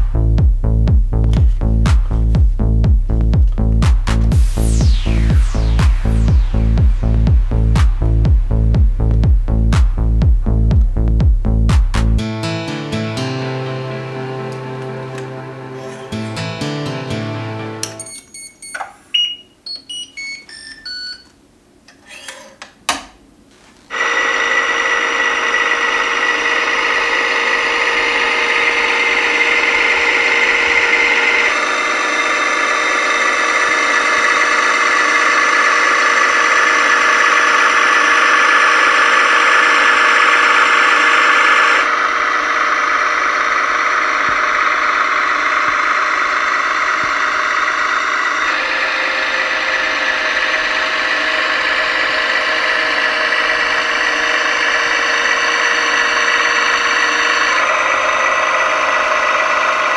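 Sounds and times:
hydraulic pump whining: 23.9 - 59.9.

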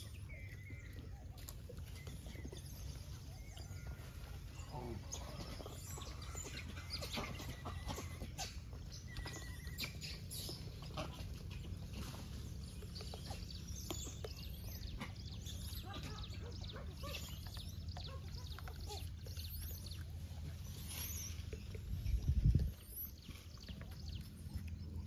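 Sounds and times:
steady low rumble: 19.8 - 25.0.

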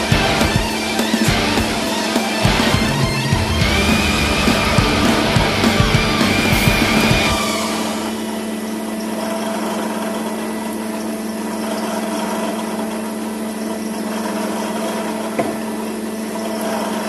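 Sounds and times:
planer motor humming: 0.0 - 9.0.

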